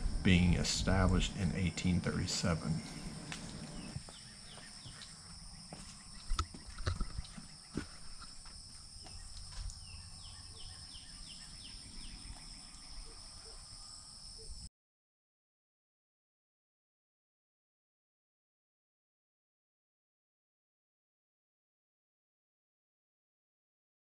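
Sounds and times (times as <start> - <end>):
insects droning: 0.0 - 14.7.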